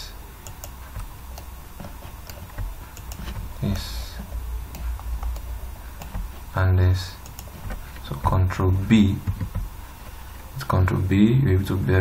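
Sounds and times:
low steady hum: 0.0s - 12.0s
mouse and keyboard clicks: 0.4s - 3.5s, 7.2s - 8.1s.

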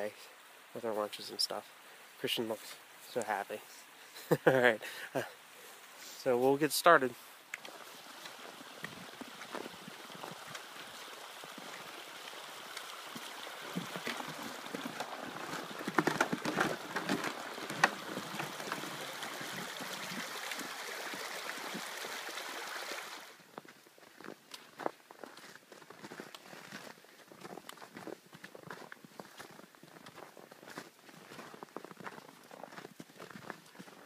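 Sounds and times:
shallow stream running: 0.0s - 34.0s
footsteps in snow: 7.1s - 21.9s, 23.5s - 34.0s
footsteps on wooden bridge: 7.6s - 20.7s, 23.5s - 34.0s.

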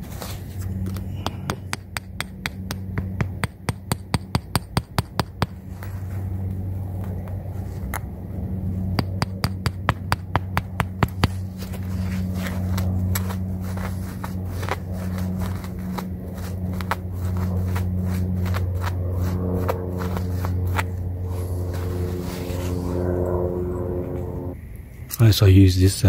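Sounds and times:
steady low hum: 0.0s - 26.0s
hammer tapping nails: 0.9s - 5.6s, 9.0s - 11.4s.

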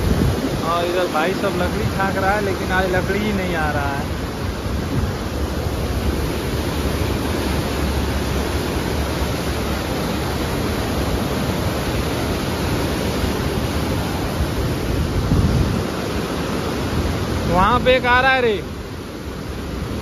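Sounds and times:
river water roaring: 0.0s - 20.0s.

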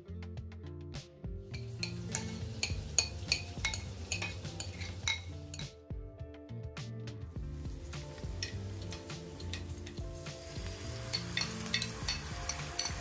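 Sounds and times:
background music: 0.0s - 13.0s
metal spoon scraping glass bowl: 1.6s - 5.6s.

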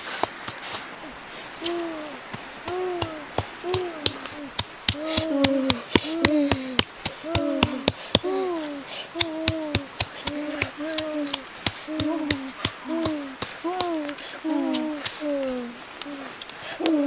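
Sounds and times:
pestle pounding in mortar: 9.2s - 14.0s.

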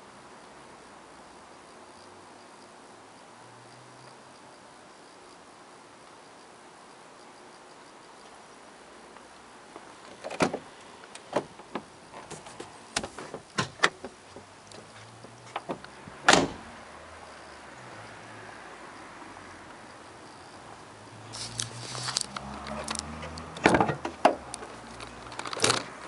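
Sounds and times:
car door shutting: 10.2s - 10.7s, 15.5s - 16.7s, 22.7s - 24.5s.

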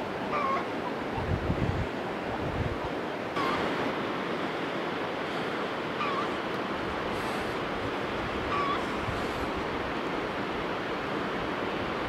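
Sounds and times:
rushing outdoor noise: 0.0s - 12.0s
high-pitched animal calls: 0.3s - 1.2s, 3.4s - 3.7s, 6.0s - 6.4s, 8.5s - 9.0s.

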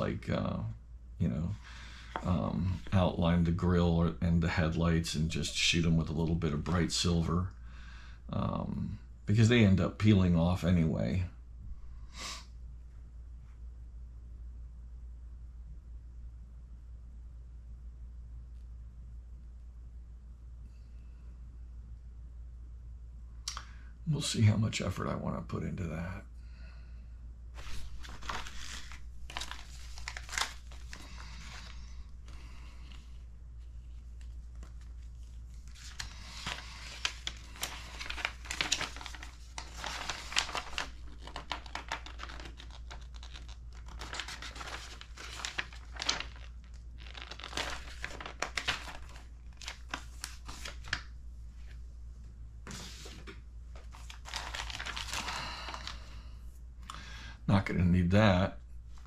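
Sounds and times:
steady low hum: 0.0s - 59.0s
paper and plastic bags crinkling: 27.6s - 51.2s, 53.8s - 56.2s.

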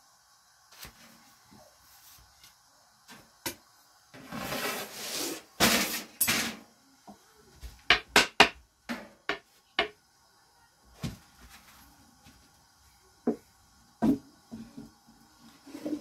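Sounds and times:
wooden rolling pin knocking: 7.9s - 8.6s.

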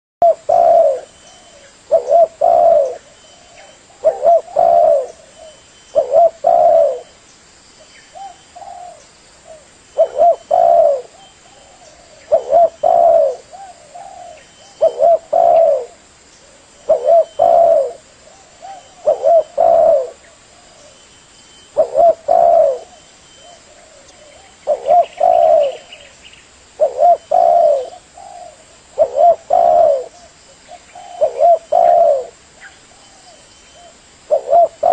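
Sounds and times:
dove cooing: 0.2s - 7.2s, 8.1s - 21.0s, 21.6s - 26.1s, 26.8s - 34.9s.

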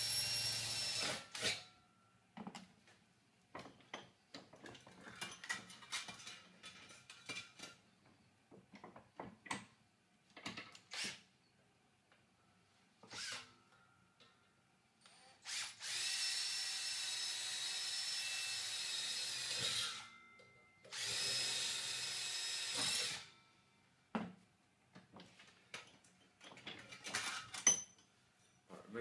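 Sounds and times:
cordless drill whining: 0.0s - 1.6s, 13.0s - 13.5s, 15.1s - 20.1s, 20.9s - 23.3s.

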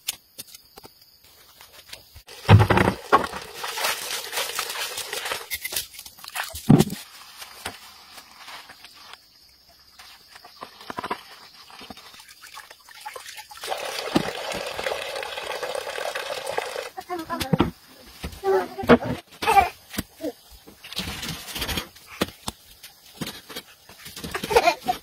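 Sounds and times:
rustling: 1.3s - 12.1s
water pouring into plastic basin: 2.3s - 5.5s, 10.5s - 17.0s.

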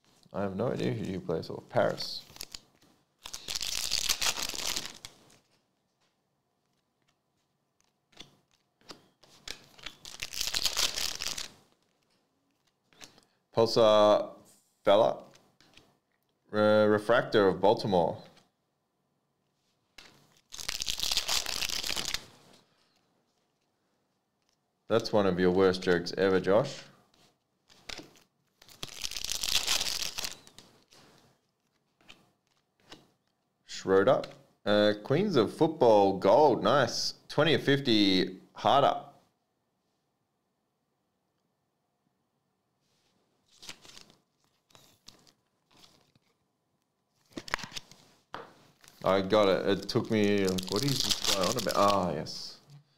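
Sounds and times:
cards rustling: 1.8s - 13.4s, 15.2s - 16.0s, 19.8s - 23.7s, 27.1s - 33.3s, 43.4s - 46.5s, 47.1s - 52.4s
card edges clicking: 7.8s - 11.5s
cards sliding and scraping: 7.8s - 13.2s, 15.3s - 15.9s, 27.1s - 29.0s, 29.6s - 33.1s.

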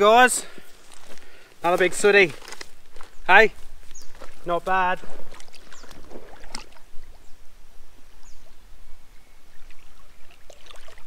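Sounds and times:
boots wading through water: 0.5s - 7.5s, 9.5s - 11.0s
water sloshing and splashing: 4.1s - 7.3s, 9.6s - 11.0s.

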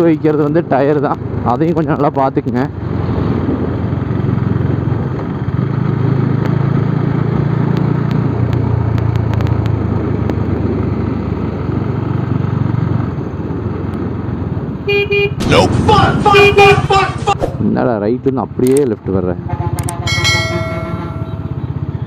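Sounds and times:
town traffic: 0.0s - 22.0s
motorcycle engine running: 19.5s - 22.0s.

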